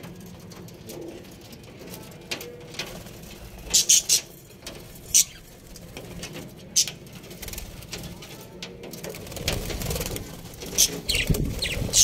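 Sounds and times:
parrots chirping: 3.7s - 4.3s, 5.0s - 5.5s, 10.7s - 12.0s.

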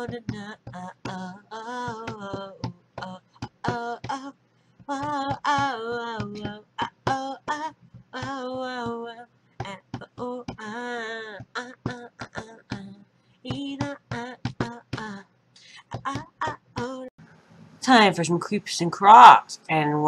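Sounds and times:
person singing without words: 0.0s - 4.3s, 4.9s - 17.1s.

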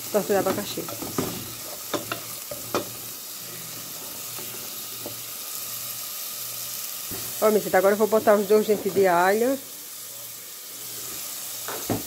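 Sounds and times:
onion sizzling in hot oil: 0.0s - 12.0s
spoon knocking on pot: 0.4s - 3.0s.

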